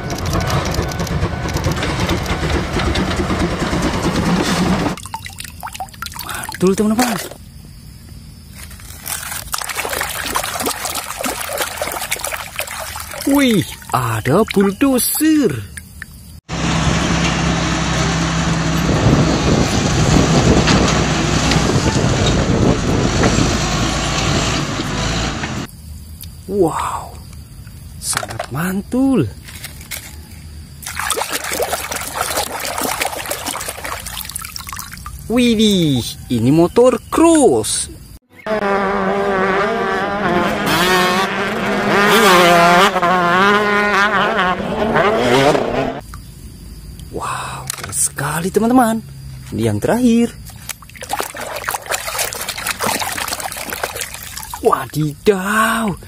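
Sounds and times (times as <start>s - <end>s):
bulldozer diesel engine running: 0.0s - 5.0s, 16.5s - 25.7s
brush and branches cracking: 8.5s - 13.4s
dirt bike engines revving: 38.4s - 46.0s.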